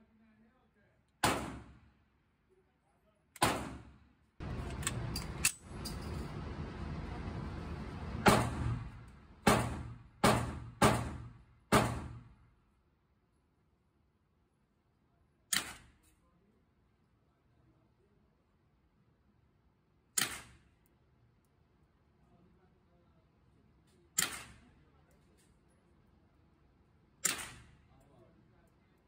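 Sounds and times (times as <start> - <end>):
gunshots echoing indoors: 1.2 - 1.9, 3.4 - 4.1, 8.2 - 12.4, 27.2 - 27.8.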